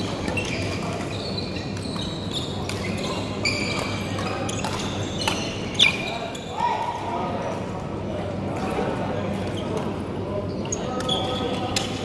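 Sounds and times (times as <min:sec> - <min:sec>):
shoes squeaking on court: 0:00.0 - 0:06.6
players' voices: 0:00.1 - 0:12.0.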